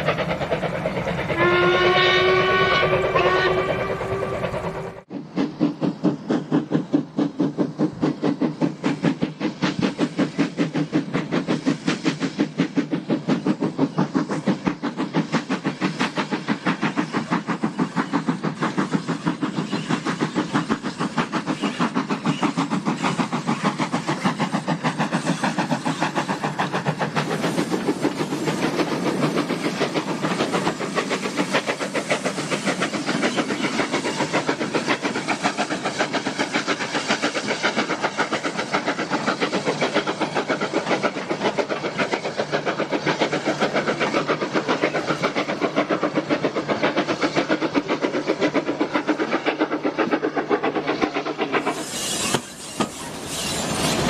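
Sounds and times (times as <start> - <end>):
steam hiss: 0.0 - 54.0
steam locomotive exhaust beats: 0.0 - 54.0.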